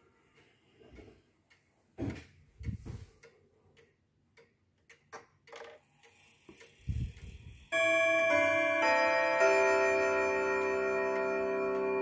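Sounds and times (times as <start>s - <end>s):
pendulum clock ticking: 2.6s - 12.0s.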